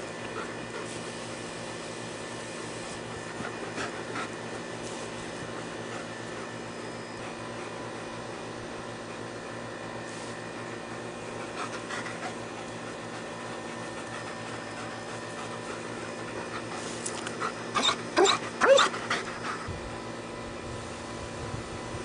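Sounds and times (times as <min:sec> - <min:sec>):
dogs panting: 0:00.0 - 0:01.5, 0:02.7 - 0:09.7, 0:10.4 - 0:20.1
dog's high excited cries: 0:17.8 - 0:18.9.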